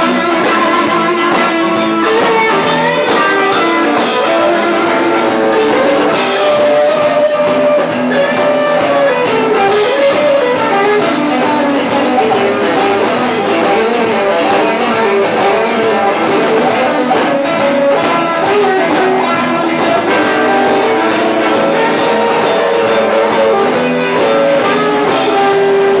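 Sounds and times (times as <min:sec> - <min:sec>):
drum kit: 0:00.0 - 0:26.0
electric guitars: 0:00.0 - 0:26.0.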